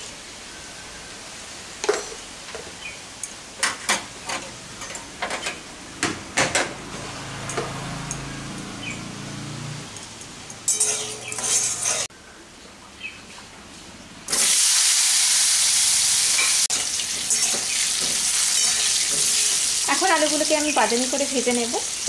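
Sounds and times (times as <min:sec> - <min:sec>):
metal spatula scraping a pan: 0:10.7 - 0:12.1, 0:16.4 - 0:19.8
hot oil crackling in a pan: 0:14.3 - 0:22.0.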